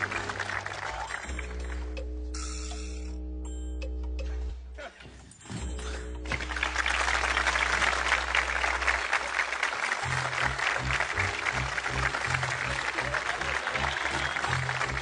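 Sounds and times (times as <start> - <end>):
clapping: 0.0 - 1.8, 6.3 - 15.0
music with bass and beat: 1.2 - 4.7.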